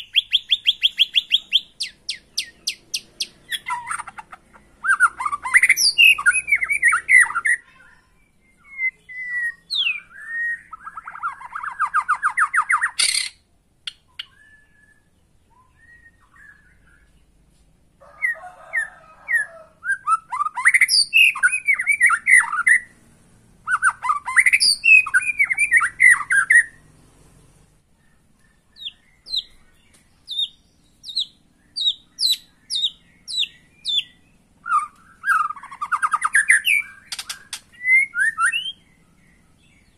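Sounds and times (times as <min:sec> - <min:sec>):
bird singing whistled phrases: 0:00.0 - 0:04.2, 0:04.8 - 0:17.2, 0:19.8 - 0:22.9, 0:23.7 - 0:26.8, 0:28.4 - 0:39.1.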